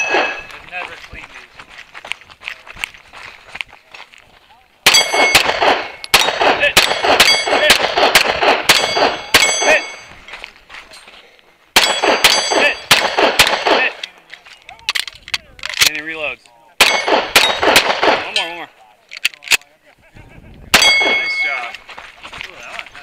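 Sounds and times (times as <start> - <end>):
rapid pistol fire: 4.9 - 9.6, 11.8 - 14.0, 16.8 - 18.3.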